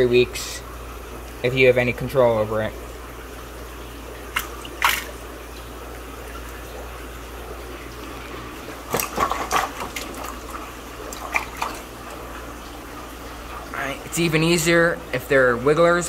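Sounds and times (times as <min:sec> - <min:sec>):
aquarium water splashing: 0:00.0 - 0:16.0
water dripping: 0:02.8 - 0:15.0.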